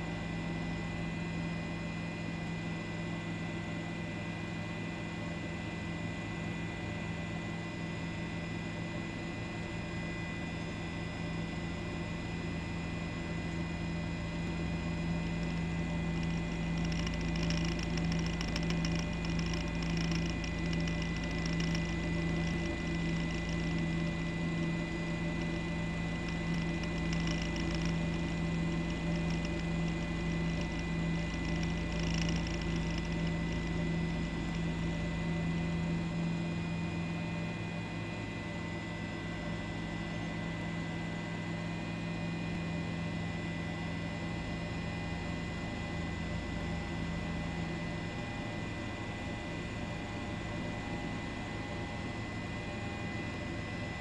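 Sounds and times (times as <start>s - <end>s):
low hum with fixed tones: 14.5s - 36.4s.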